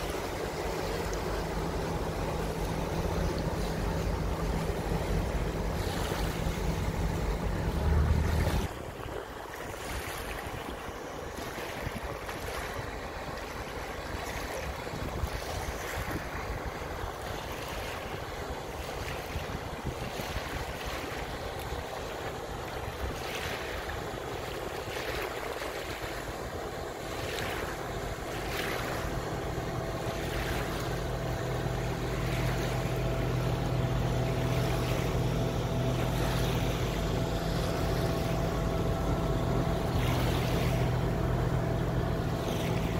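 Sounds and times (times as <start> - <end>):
boat engine drone: 0.0 - 42.9
water splashing along boat hull: 0.0 - 42.9.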